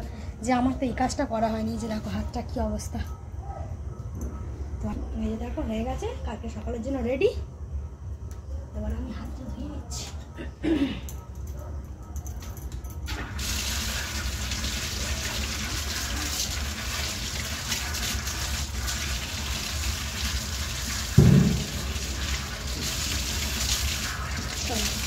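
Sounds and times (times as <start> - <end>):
tap water on concrete floor: 12.5 - 25.0
low thump: 21.2 - 22.2.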